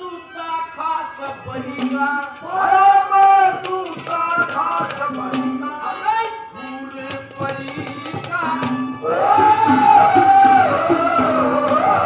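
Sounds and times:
man singing through pa: 0.0s - 12.0s
hand drum beating: 3.4s - 5.7s, 7.1s - 12.0s.

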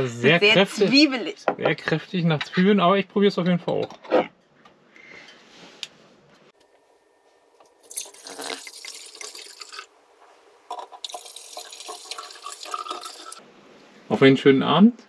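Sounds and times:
wine pouring into glasses: 7.8s - 9.9s, 10.7s - 13.4s.

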